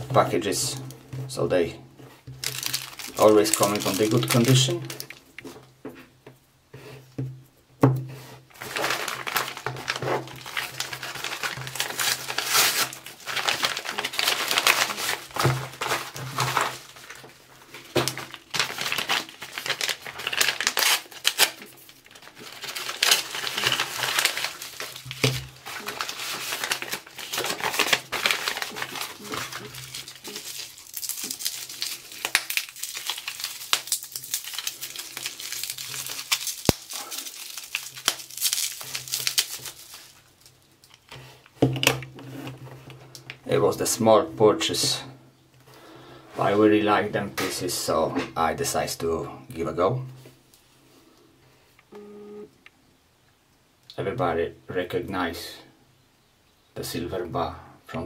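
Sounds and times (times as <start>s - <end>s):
plastic and bubble wrap crinkling: 0.0s - 6.2s, 8.1s - 44.0s
packaging tearing: 2.4s - 5.4s, 8.5s - 42.6s.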